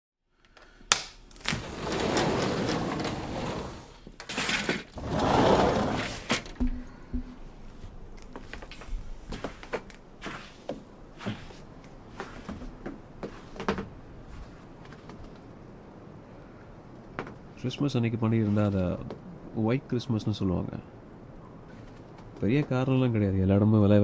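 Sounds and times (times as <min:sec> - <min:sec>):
sliding glass door sliding: 0:01.3 - 0:06.6.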